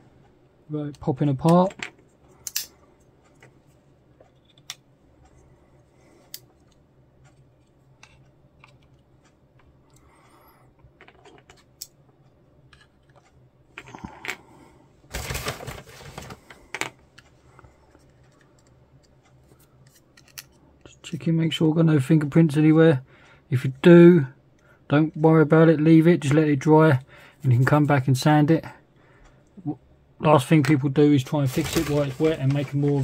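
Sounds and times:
scraping and rustling: 15.1 - 16.6, 31.3 - 33.0.

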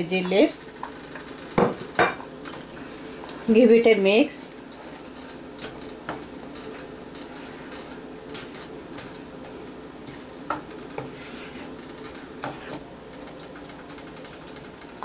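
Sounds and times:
wooden spoon scraping a pan: 2.6 - 12.9.

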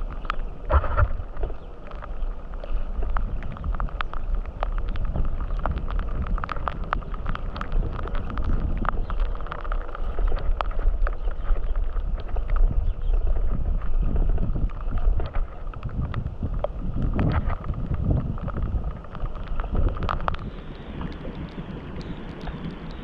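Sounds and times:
bike rattling over gravel: 0.0 - 23.0
wind rumbling on microphone: 0.0 - 23.0.

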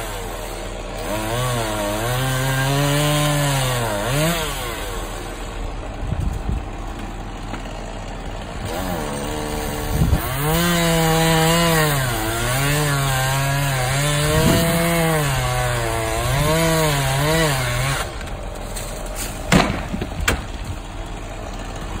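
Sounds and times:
chainsaw cutting wood: 0.0 - 22.0
sharp knocks: 19.5 - 20.6.

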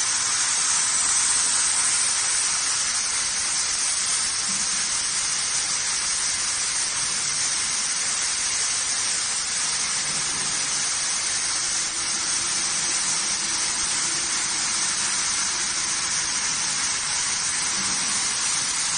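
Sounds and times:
gas jet hissing: 0.0 - 18.9
low machine hum: 10.0 - 18.9.

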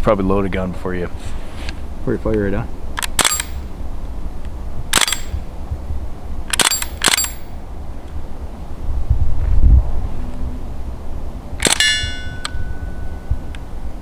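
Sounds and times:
bb rifle shots: 3.0 - 3.6, 4.9 - 5.4, 6.5 - 7.5, 11.6 - 12.3.

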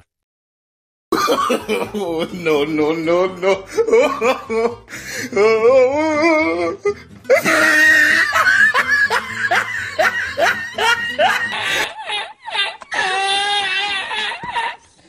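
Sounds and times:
burst of laughter: 7.3 - 13.3.

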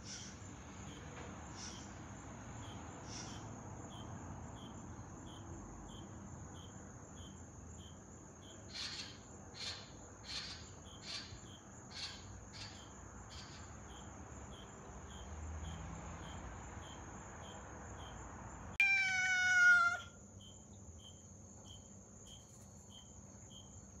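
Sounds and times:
crickets chirping: 0.0 - 24.0
cat meowing: 18.8 - 20.2
gecko croaking: 18.8 - 20.2.

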